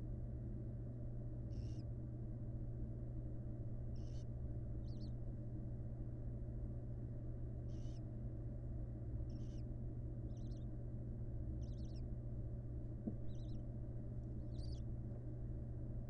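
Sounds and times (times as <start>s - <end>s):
low hum: 0.0s - 16.0s
barn owl calls: 1.5s - 1.9s, 3.9s - 5.2s, 7.6s - 8.1s, 9.2s - 10.8s, 11.5s - 12.1s, 13.1s - 13.7s, 14.4s - 14.9s.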